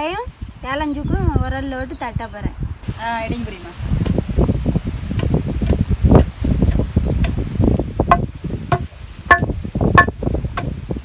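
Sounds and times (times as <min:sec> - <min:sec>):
wind buffeting microphone: 0:00.0 - 0:11.0
pestle pounding in stone mortar: 0:08.1 - 0:10.8.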